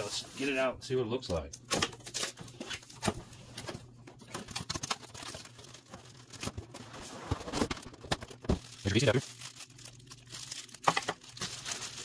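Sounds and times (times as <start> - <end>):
packaging rustling and clicking: 1.6 - 12.0.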